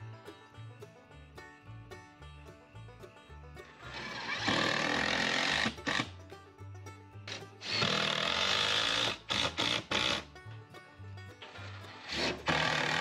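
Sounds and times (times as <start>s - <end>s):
background music: 0.0s - 13.0s
power saw cutting wood: 3.6s - 6.3s, 7.3s - 10.3s, 11.4s - 13.0s.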